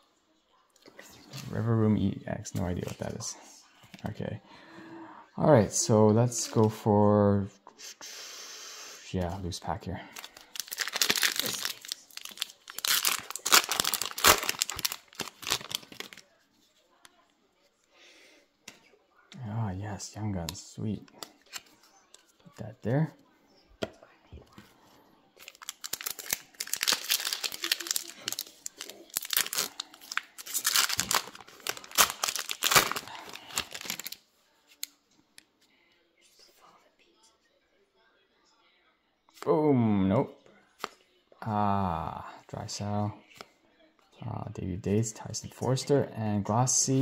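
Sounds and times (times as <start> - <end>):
foil wrapper crinkling and tearing: 10.2 - 16.3, 25.4 - 34.2.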